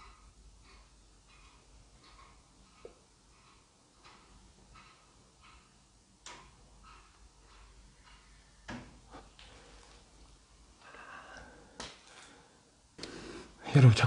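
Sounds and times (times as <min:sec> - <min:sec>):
faint clicks and taps: 0:00.0 - 0:10.1.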